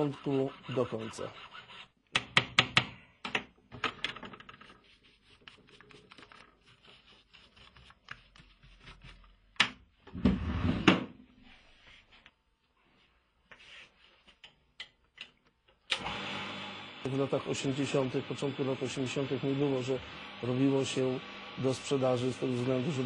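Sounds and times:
hand file scraping metal: 0.0s - 2.0s.

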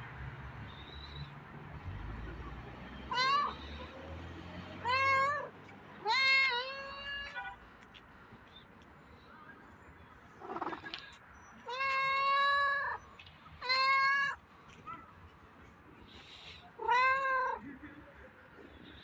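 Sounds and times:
cat meowing: 3.1s - 3.7s, 16.8s - 17.6s.

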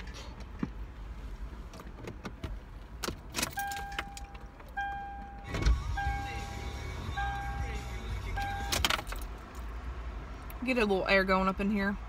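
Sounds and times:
dashboard warning chime: 3.4s - 9.0s
keys jangling: 8.6s - 9.7s.

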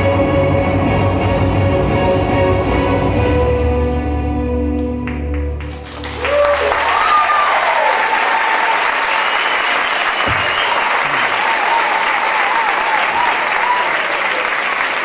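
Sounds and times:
audience applause: 5.0s - 15.0s
crowd cheering and whooping: 5.8s - 15.0s.

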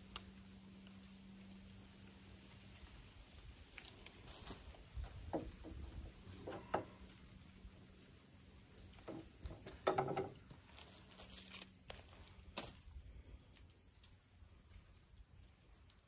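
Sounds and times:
gear rustles clicks and knocks: 3.7s - 7.1s, 8.8s - 16.0s.

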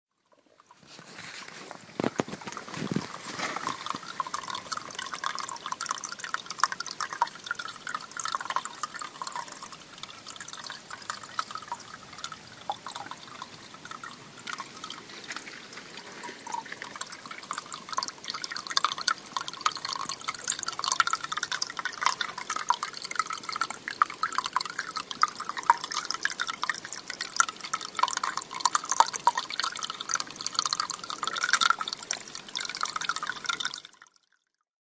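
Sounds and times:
spring water trickling and dripping: 0.1s - 34.6s.

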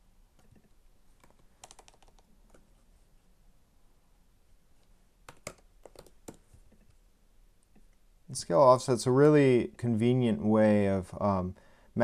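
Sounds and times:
faint keyboard typing: 0.4s - 2.8s, 4.8s - 7.0s.

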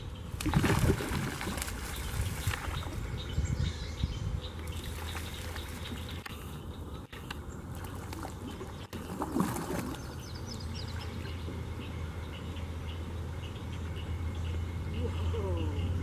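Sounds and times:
steady low rumble: 0.0s - 16.0s
water splash: 0.4s - 3.0s, 7.7s - 10.1s.

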